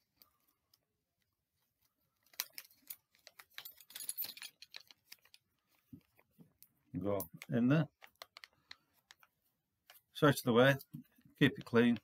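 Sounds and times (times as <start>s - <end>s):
metal badge clicking and rattling: 2.2s - 5.4s.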